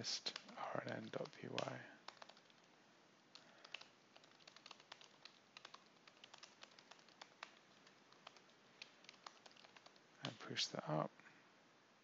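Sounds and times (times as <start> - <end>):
typing on computer keyboard: 0.3 - 2.7, 3.3 - 10.4.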